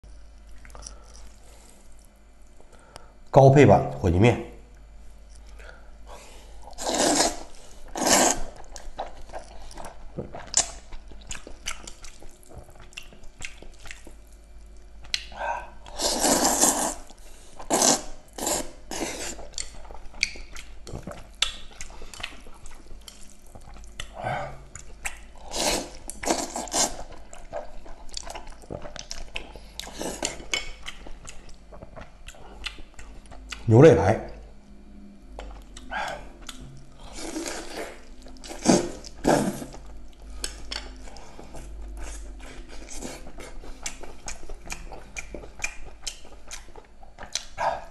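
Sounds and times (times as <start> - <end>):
noodles being slurped: 6.8 - 8.6, 15.9 - 17.1
mouth chewing and smacking: 7.9 - 16.0, 19.3 - 34.5, 35.2 - 47.9.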